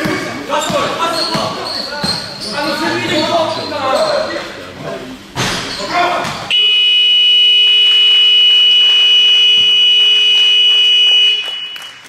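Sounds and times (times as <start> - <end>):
scoreboard buzzer: 6.5 - 12.0.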